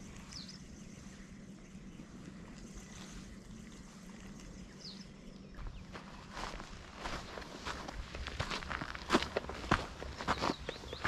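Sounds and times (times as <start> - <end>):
low hum: 0.0 - 11.0
wind or water noise: 0.0 - 11.0
high bird chirp: 9.7 - 11.0.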